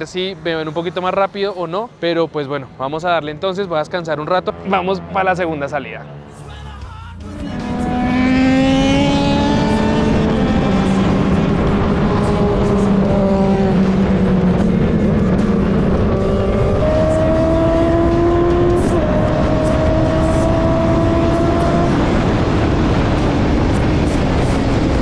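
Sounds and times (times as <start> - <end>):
motorcycle engine accelerating: 7.3 - 25.0
wind rush on microphone: 8.2 - 25.0.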